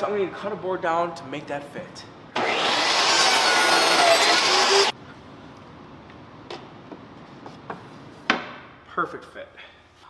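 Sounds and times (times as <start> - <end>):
table saw cutting wood: 2.4 - 4.9.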